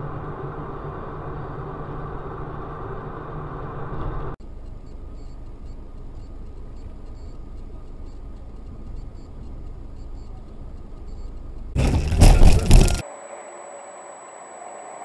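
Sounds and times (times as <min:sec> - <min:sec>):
car road and engine rumble: 0:00.0 - 0:13.0
car crash impacts: 0:11.8 - 0:13.0.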